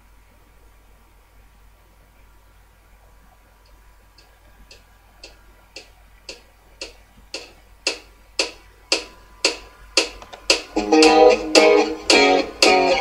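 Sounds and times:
guitar music: 8.9 - 13.0.

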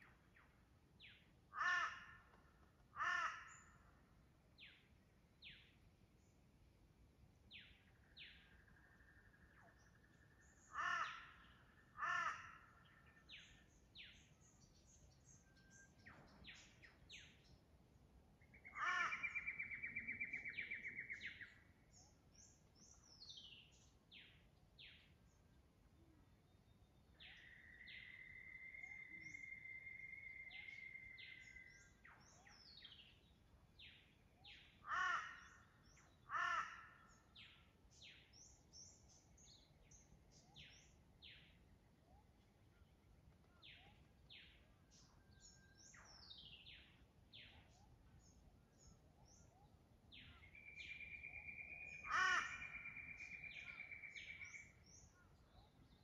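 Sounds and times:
loud bird calls: 1.0 - 4.8, 7.5 - 17.5, 18.4 - 25.0, 33.8 - 41.6, 49.4 - 56.0
birds chirping and whistling: 18.6 - 23.9, 27.2 - 33.2, 37.4 - 41.5, 43.6 - 56.0.

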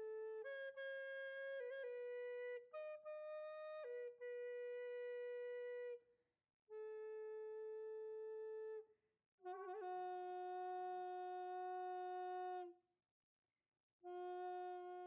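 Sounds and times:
flute playing long notes: 6.7 - 8.8, 9.4 - 12.7, 14.1 - 15.0.

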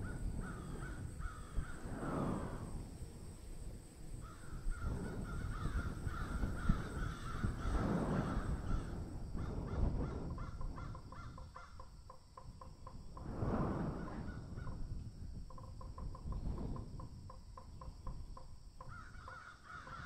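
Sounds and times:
harsh crow-like bird calls: 0.0 - 1.8, 4.2 - 12.0, 18.8 - 20.0.

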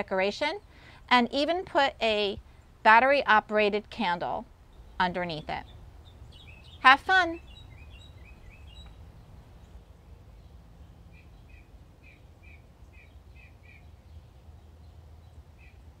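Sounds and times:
small bird chirping: 4.7 - 16.0.

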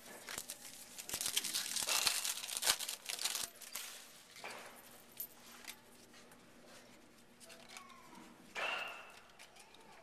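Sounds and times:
card wrapper crinkling: 0.1 - 4.0.

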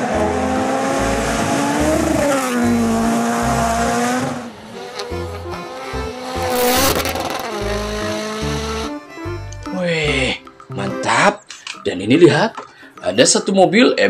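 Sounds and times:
rally cars passing at speed: 0.0 - 8.9
background music with bass beat: 5.1 - 11.0.

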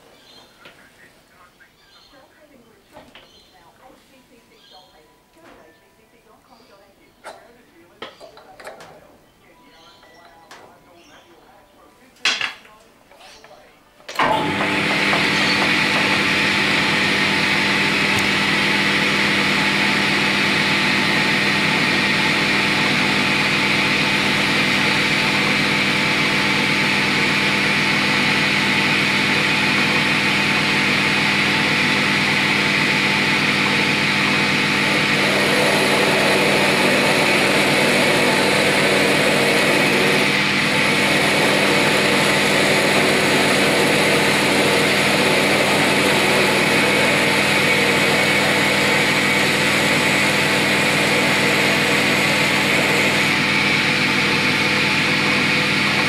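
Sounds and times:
lathe tool cutting workpiece: 14.1 - 56.0
metal lathe humming and whining: 14.1 - 56.0.

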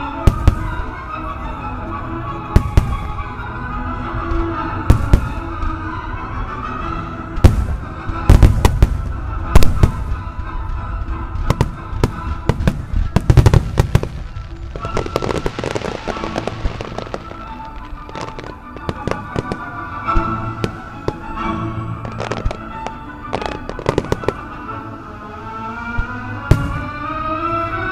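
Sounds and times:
fireworks crackling: 0.0 - 1.6, 2.5 - 5.9, 7.4 - 25.6, 26.3 - 27.9
music playing: 0.0 - 27.9
firework shells bursting: 11.5 - 21.5, 22.1 - 24.6.

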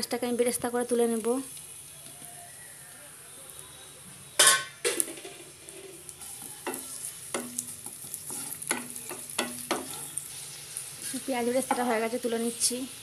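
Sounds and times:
onions sizzling in oil: 0.0 - 13.0
spatula scraping pan: 5.3 - 12.0.

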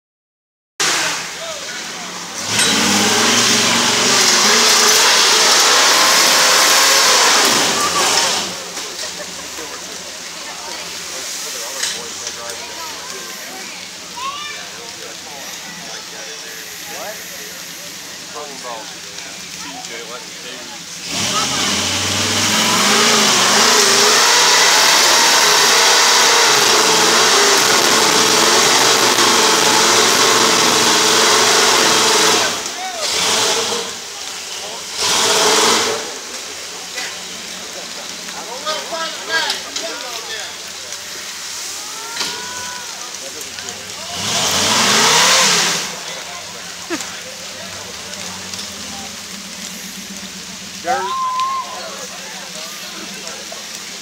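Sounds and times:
engine revving hard: 0.8 - 8.8, 20.9 - 37.2, 43.6 - 51.0
wheels spinning and spraying dirt: 0.8 - 54.0.

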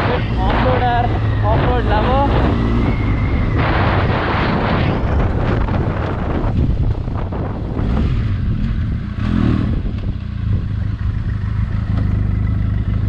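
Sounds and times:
wind noise on microphone: 0.0 - 12.0
motorcycle engine idling: 6.6 - 13.0.

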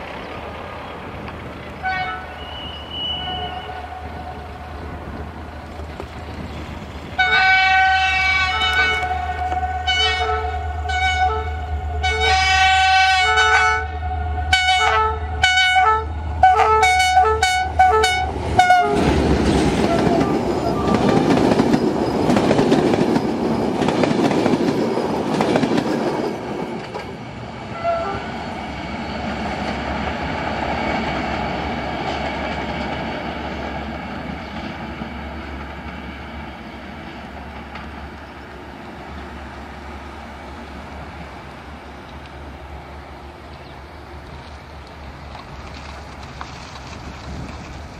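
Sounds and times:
train wheels on rails: 0.0 - 14.0, 16.2 - 47.9
locomotive engine drone: 0.0 - 47.9
locomotive horn blasts: 1.8 - 4.6, 7.2 - 19.1, 19.8 - 21.3, 27.7 - 28.3.

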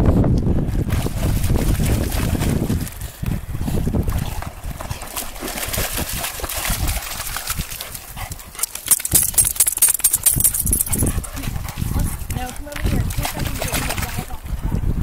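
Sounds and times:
dog splashing out of water: 0.8 - 3.0, 4.0 - 12.1, 12.9 - 14.4
dog shaking water from fur: 0.9 - 3.0, 4.1 - 7.9, 12.9 - 14.3.

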